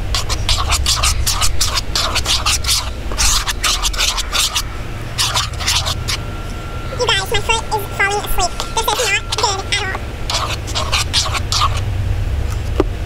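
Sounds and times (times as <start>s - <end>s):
utensil stirring thick slime: 0.0s - 11.9s.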